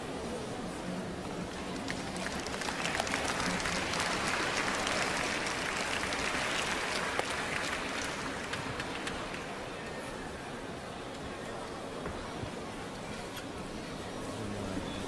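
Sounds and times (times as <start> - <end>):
crowd applauding: 1.5 - 9.6.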